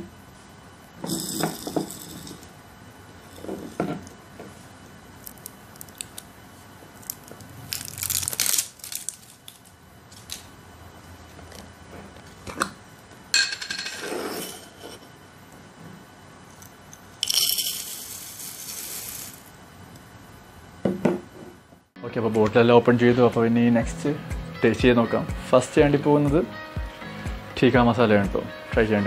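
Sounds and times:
foil seal tearing: 7.2 - 9.6
glass jar and cap clinks: 17.2 - 17.9.

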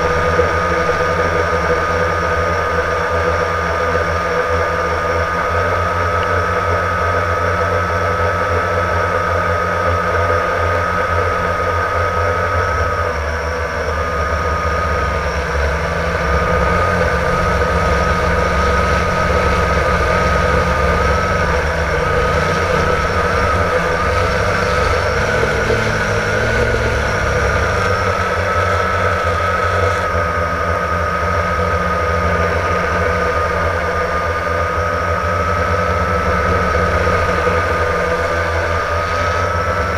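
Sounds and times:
quadcopter motors whining: 0.0 - 39.9
low rumble: 12.7 - 39.9.

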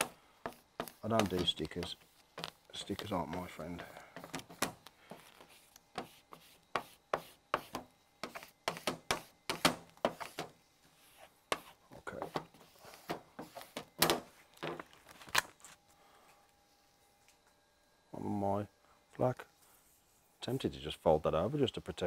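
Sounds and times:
plastic squeegee scraping vinyl: 0.8 - 3.6.

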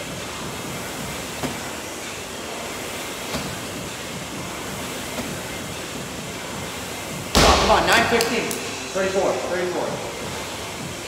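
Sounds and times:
steady background hiss: 0.0 - 11.0
medicine ball thudding on wall: 7.3 - 8.2.

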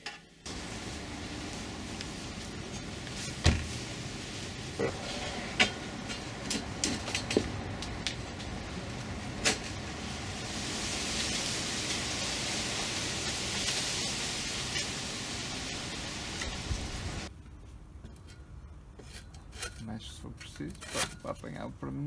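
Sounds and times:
steady hiss: 0.4 - 17.3.

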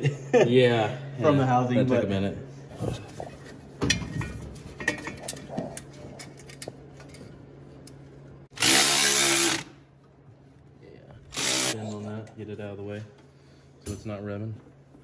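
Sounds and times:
cordless electric ratchet running: 8.6 - 9.8, 11.3 - 11.8.

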